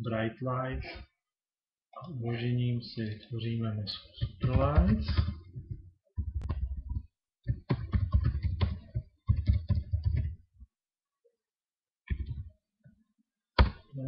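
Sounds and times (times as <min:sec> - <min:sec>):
typing on computer keyboard: 0:04.2 - 0:10.4, 0:12.1 - 0:12.5.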